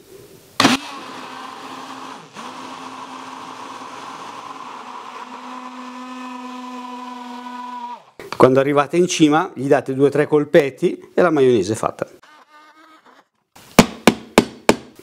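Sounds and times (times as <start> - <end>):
immersion blender running: 0.6 - 8.2.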